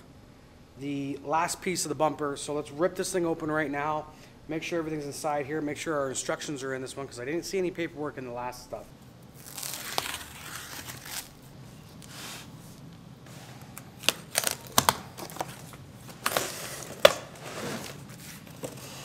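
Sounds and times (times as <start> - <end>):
plastic wrap crinkling and tearing: 9.3 - 11.5, 13.8 - 17.2.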